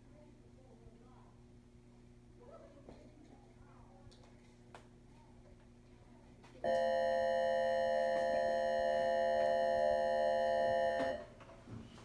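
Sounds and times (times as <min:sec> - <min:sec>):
electronic class bell tone: 0:06.7 - 0:11.3.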